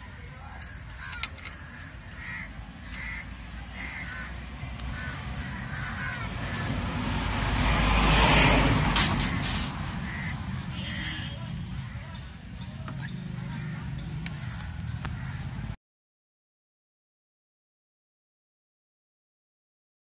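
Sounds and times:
bird calling: 0:09.3 - 0:15.6.

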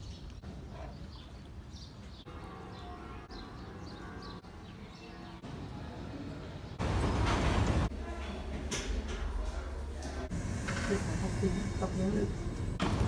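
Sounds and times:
birds chirping: 0:00.0 - 0:07.2.

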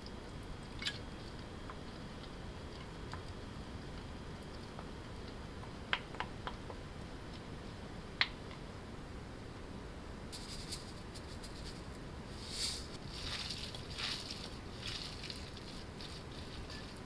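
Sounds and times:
wet rustle of noodles tossed: 0:10.4 - 0:17.0.

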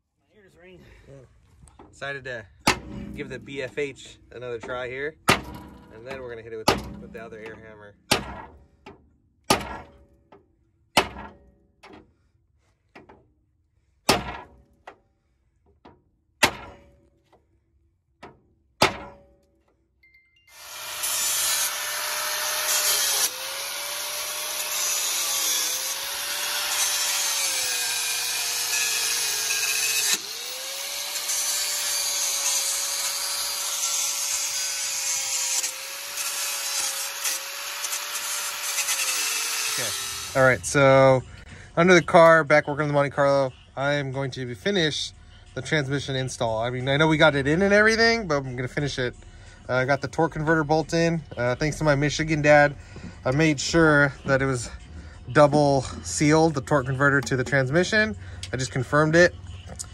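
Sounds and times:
pneumatic air hammer: 0:20.5 - 0:40.4.

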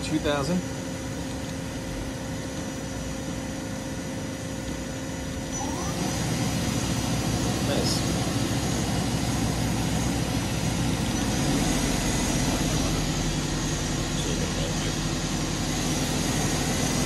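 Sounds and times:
machine hum with high whines: 0:00.0 - 0:17.0.

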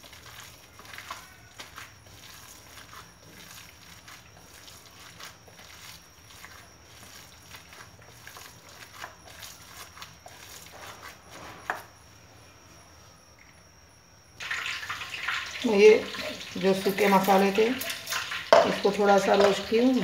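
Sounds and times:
hand squelching minced meat: 0:00.0 - 0:11.8.

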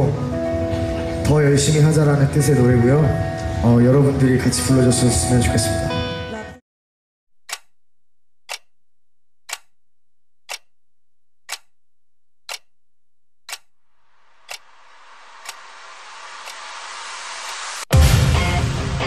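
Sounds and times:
clock ticking: 0:07.4 - 0:07.8, 0:08.4 - 0:08.8, 0:09.4 - 0:09.8, 0:10.4 - 0:10.8, 0:11.4 - 0:11.8, 0:12.4 - 0:12.8, 0:13.4 - 0:17.9.

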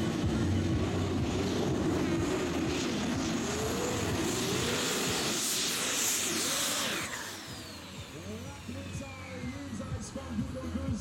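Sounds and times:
tractor engine at full throttle: 0:00.0 - 0:11.0
hiss: 0:04.3 - 0:08.4.

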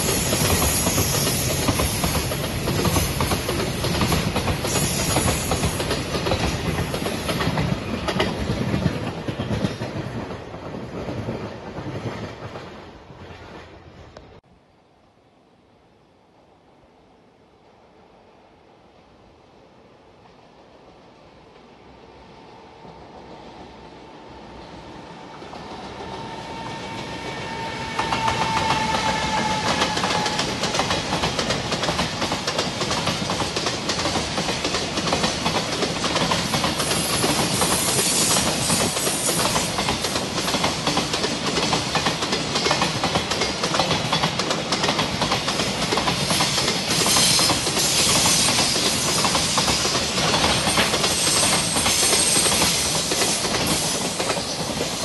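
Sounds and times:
wheels clicking over rail joints: 0:00.2 - 0:12.8, 0:28.0 - 0:55.0
locomotive passing: 0:21.6 - 0:55.0.

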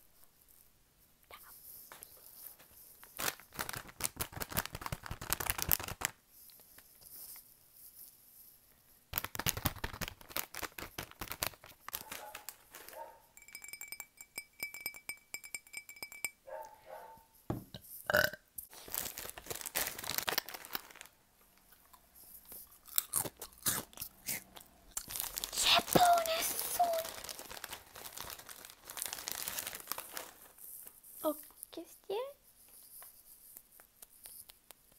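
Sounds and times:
crisp packet crinkling: 0:03.0 - 0:06.9, 0:09.1 - 0:13.0, 0:18.7 - 0:31.6.

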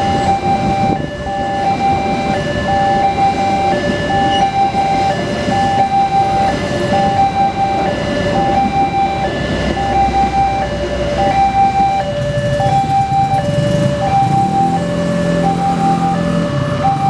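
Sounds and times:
train rumbling past: 0:00.0 - 0:11.4
two-tone crossing alarm: 0:00.0 - 0:17.0
vehicle engines: 0:00.0 - 0:17.0.

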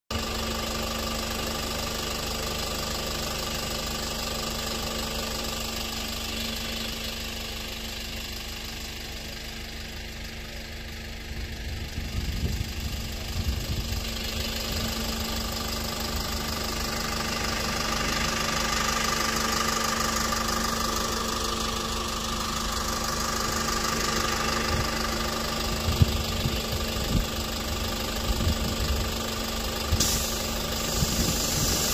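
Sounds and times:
engine humming: 0:00.1 - 0:31.9
pressure washer spray hissing: 0:29.9 - 0:31.9.

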